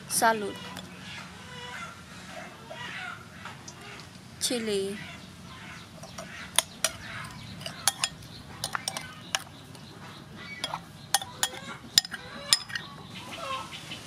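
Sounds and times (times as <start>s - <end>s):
spoon clinking against bowl: 6.0s - 9.5s, 10.6s - 12.9s.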